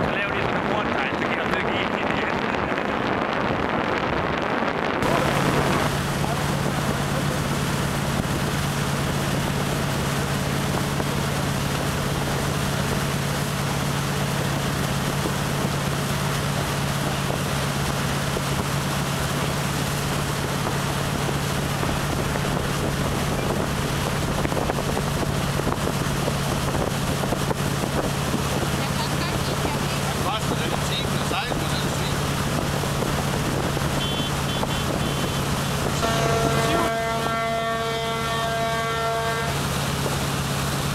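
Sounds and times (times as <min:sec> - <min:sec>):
wind on microphone: 0:00.0 - 0:38.8
motorboat engine droning: 0:00.0 - 0:40.9
rush of boat wake: 0:00.0 - 0:40.9.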